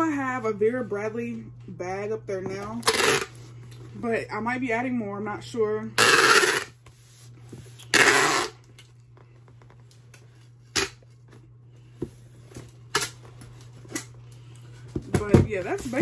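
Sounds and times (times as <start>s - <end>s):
packing tape ripping: 2.8s - 3.4s, 7.9s - 8.6s, 10.7s - 11.0s.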